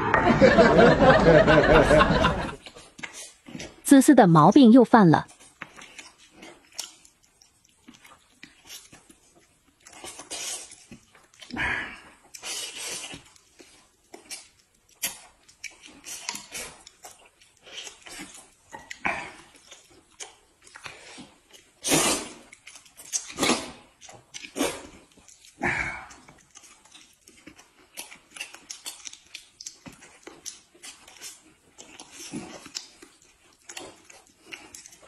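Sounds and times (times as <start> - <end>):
people chewing: 0.0 - 4.4, 5.2 - 35.0
slurping noodles: 5.3 - 27.8, 30.3 - 35.0.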